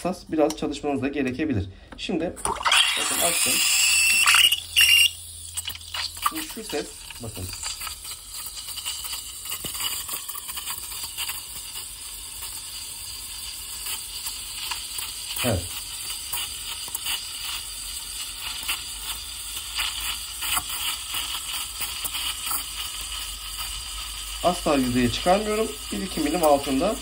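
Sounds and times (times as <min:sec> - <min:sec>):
steam wand hissing in milk: 0:02.7 - 0:27.0.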